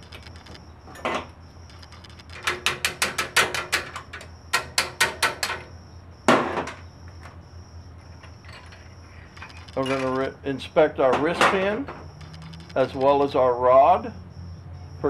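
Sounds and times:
rapid metal taps: 1.7s - 5.6s.

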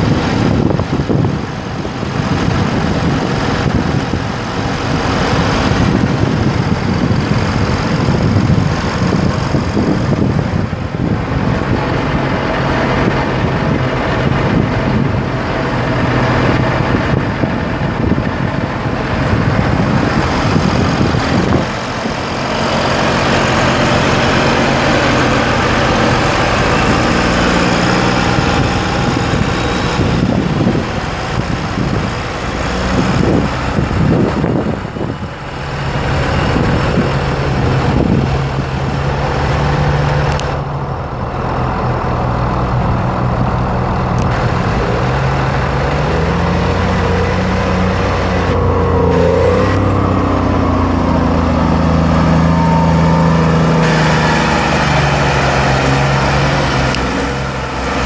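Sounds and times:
diesel tractor idling: 0.0s - 58.0s.

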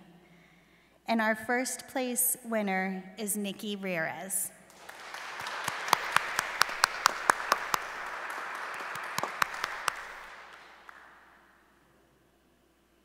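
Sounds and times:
crowd clapping: 4.7s - 11.5s
sharp close claps: 4.7s - 11.5s.

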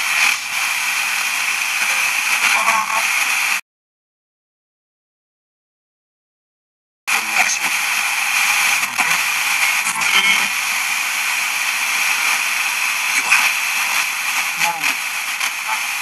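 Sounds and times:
radio static hiss: 0.0s - 3.6s, 7.1s - 16.0s
faint radio voice fragments: 1.6s - 3.2s, 7.1s - 16.0s.

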